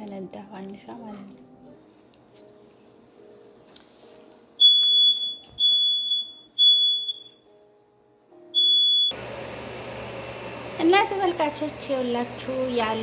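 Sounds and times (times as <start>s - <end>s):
smoke alarm beeping: 4.6s - 7.5s, 8.5s - 9.2s.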